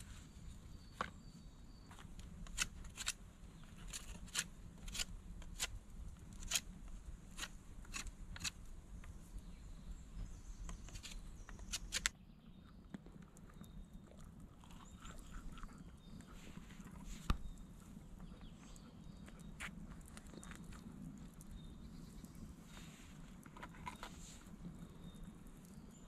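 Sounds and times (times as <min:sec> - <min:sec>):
wood fire crackling and popping: 0:19.4 - 0:22.5.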